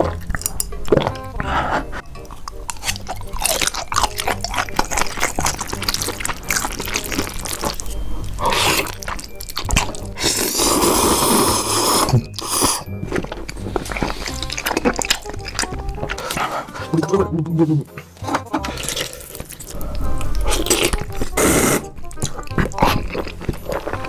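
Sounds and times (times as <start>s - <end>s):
background music: 0.0s - 24.0s
chewing clicks: 2.2s - 7.9s, 12.4s - 16.2s
wet slurping: 8.4s - 12.9s, 20.4s - 21.9s.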